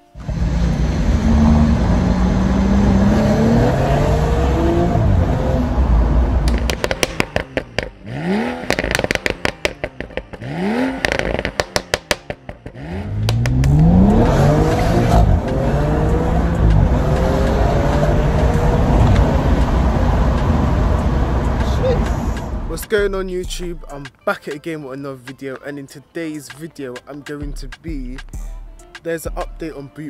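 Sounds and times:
engine rev blips: 0.0 - 22.7
car engine pulling hard: 0.0 - 22.8
exhaust pops and crackles: 6.3 - 15.6, 16.4 - 24.0.

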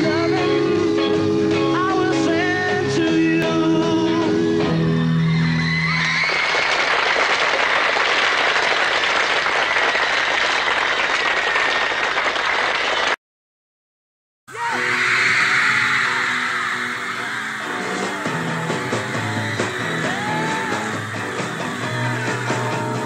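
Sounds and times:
audience cheering and applauding: 4.9 - 13.2, 14.5 - 23.0.

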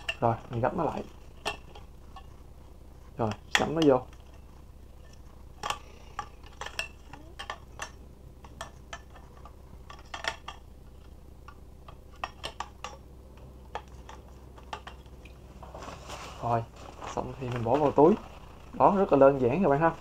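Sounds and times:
metal tubes clicking and clinking: 5.0 - 11.1.

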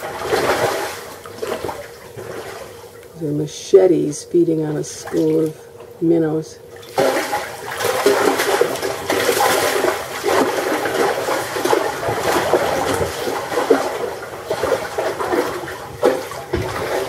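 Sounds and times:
water splashing and fizzing: 0.0 - 2.7, 6.8 - 17.0.

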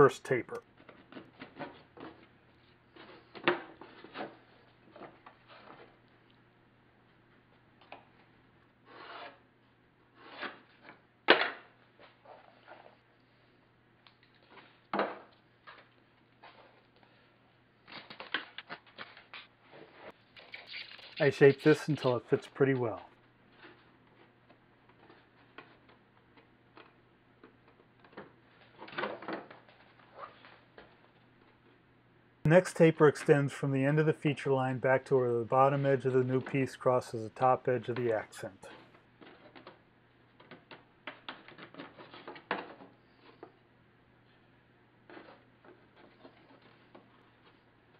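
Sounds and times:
wood strips scraping and rubbing: 8.9 - 9.4.

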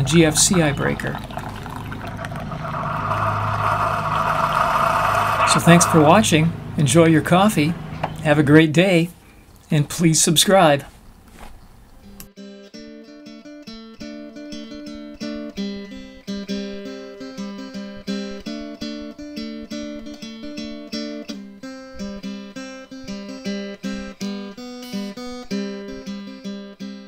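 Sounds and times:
acoustic guitar strumming: 12.4 - 27.0.

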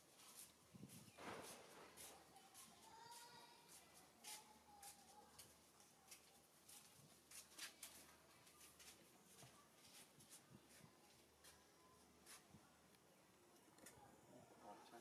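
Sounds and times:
faint scattered clicks: 12.9 - 14.0.

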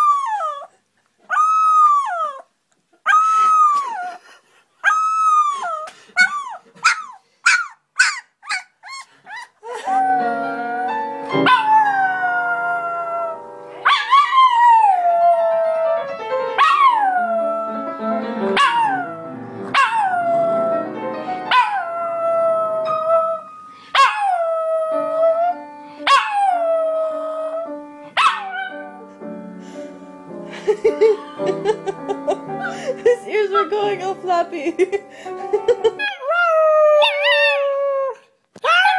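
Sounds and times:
piano chords: 9.9 - 36.0.

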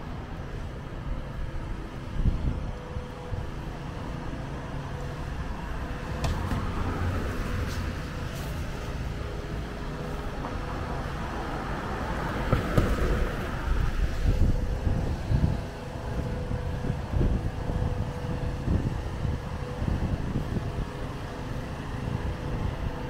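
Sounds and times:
engine hum: 0.0 - 23.0.

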